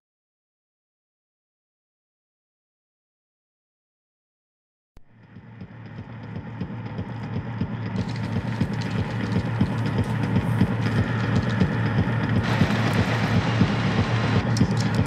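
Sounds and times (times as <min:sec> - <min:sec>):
low rumble with deep hum: 0:05.1 - 0:15.0.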